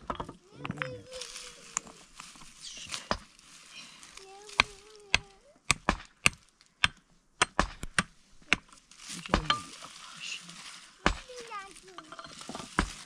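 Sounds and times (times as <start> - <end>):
pick striking stony ground: 0.0 - 3.4, 4.4 - 10.0, 11.0 - 13.0
earth and stones scraped: 0.0 - 4.9, 8.4 - 13.0.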